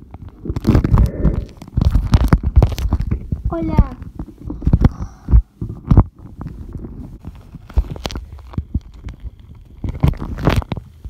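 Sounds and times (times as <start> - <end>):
low rumble: 0.0 - 7.6
slime squelching: 0.0 - 10.7
knocks and rubbing on microphone: 0.1 - 11.0.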